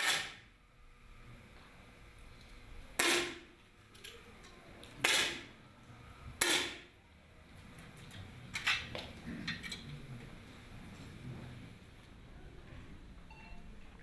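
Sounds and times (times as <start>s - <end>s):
air rifle shots: 0.0s - 0.4s, 3.0s - 3.4s, 5.0s - 5.4s, 6.4s - 6.8s.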